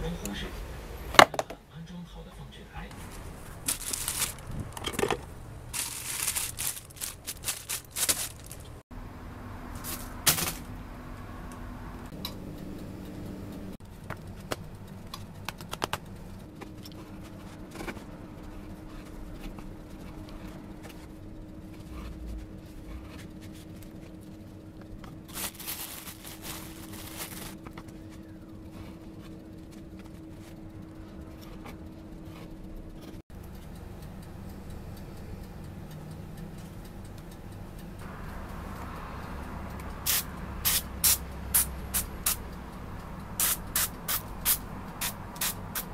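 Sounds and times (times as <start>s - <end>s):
low steady hum: 0.0s - 45.8s
bread rustling: 3.0s - 8.8s, 16.6s - 33.2s.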